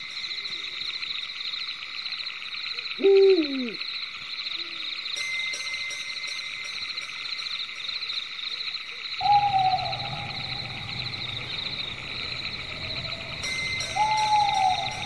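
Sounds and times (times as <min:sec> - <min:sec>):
drawn-out falling animal call: 0:09.2 - 0:15.0
low hum: 0:09.2 - 0:15.0
pulsing chorus of animal calls: 0:09.2 - 0:15.0.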